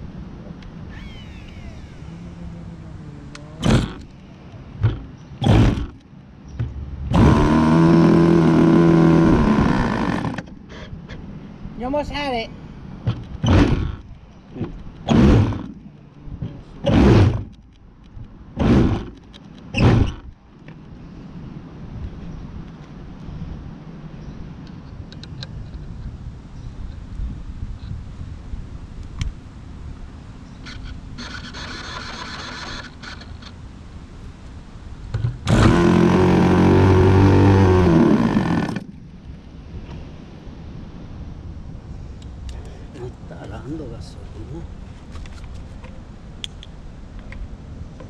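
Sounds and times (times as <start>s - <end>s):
electric starter spinning engine: 31.2s - 33.4s, 35.4s - 38.9s.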